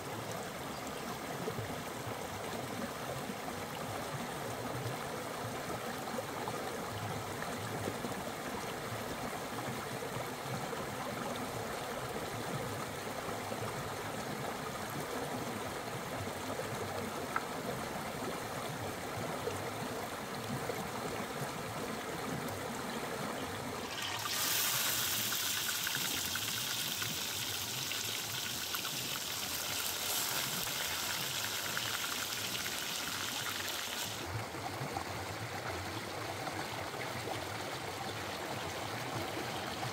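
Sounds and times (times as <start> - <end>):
river running over rocks: 23.5 - 35.2
fish sizzling in hot oil: 23.8 - 34.2.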